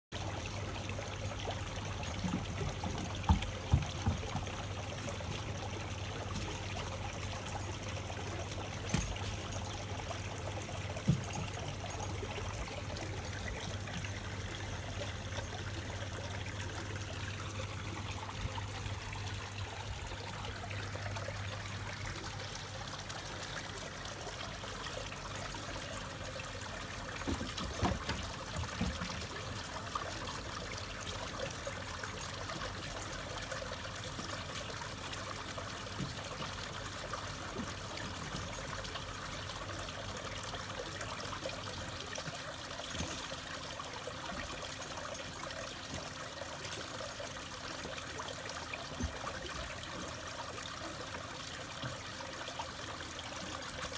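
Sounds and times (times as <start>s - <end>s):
water pouring into pool: 0.2s - 53.9s
knocks and splashes: 2.1s - 5.6s, 8.8s - 14.2s, 27.1s - 29.6s.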